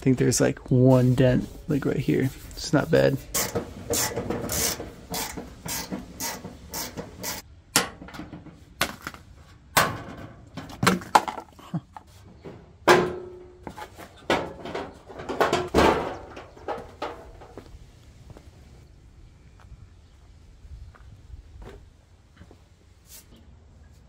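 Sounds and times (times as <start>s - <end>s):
metal clanks and knocks: 3.2s - 8.8s, 9.7s - 11.6s, 12.3s - 17.7s.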